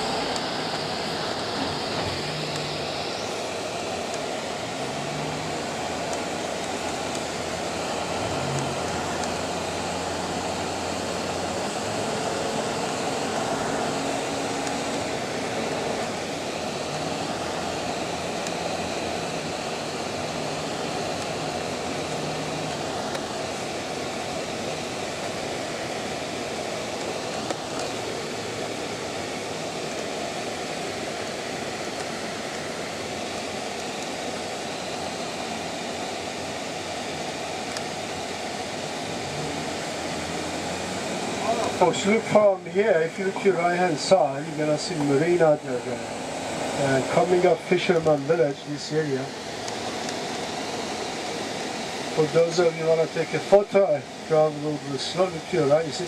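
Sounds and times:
low engine hum: 0:00.0 - 0:33.6, 0:34.8 - 0:53.2.

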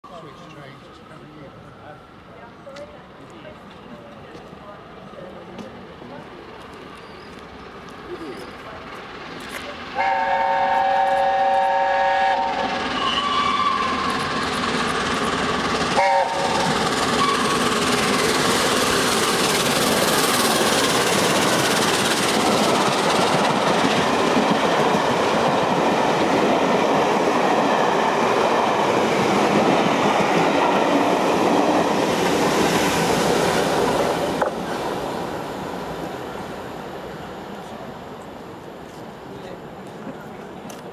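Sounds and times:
train rushing past: 0:00.1 - 0:40.9
steam locomotive whistle: 0:10.0 - 0:14.1, 0:15.9 - 0:17.8.

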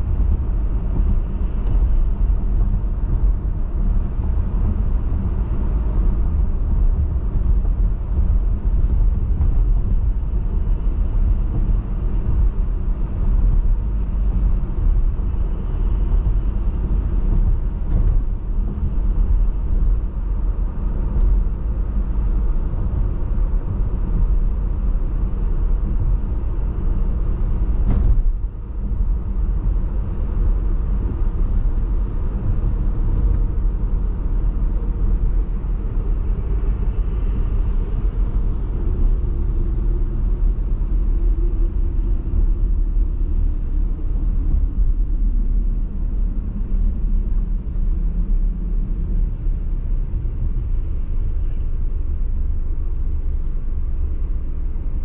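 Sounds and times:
road and wind noise: 0:00.0 - 0:55.0.

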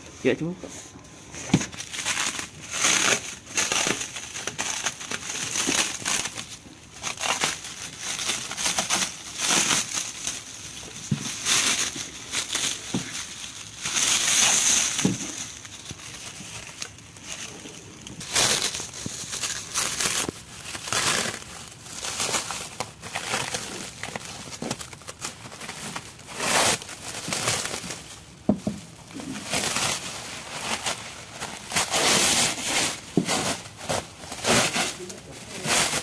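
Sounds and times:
plastic bag crinkling: 0:01.4 - 0:36.0.

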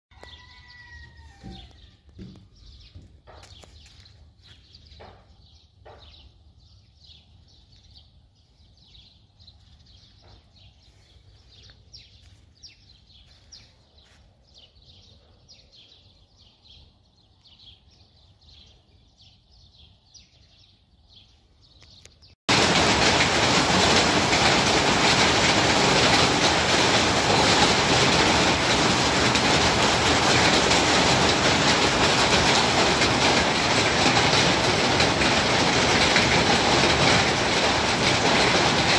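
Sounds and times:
small birds chirping: 0:00.1 - 0:22.4
hail and rain pelting down: 0:22.5 - 0:38.9
hailstorm roaring: 0:22.5 - 0:38.9.

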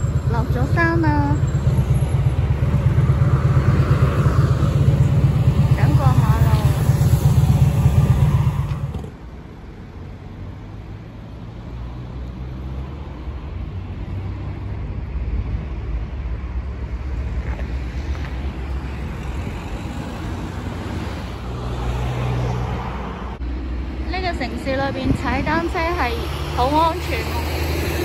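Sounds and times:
motorcycle idling: 0:00.0 - 0:08.9
road traffic rumble: 0:00.0 - 0:28.0.

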